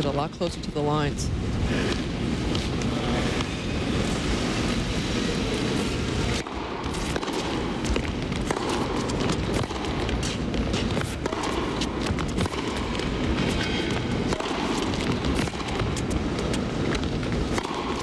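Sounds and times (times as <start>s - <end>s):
tennis racquets hitting ball: 6.2s - 18.0s.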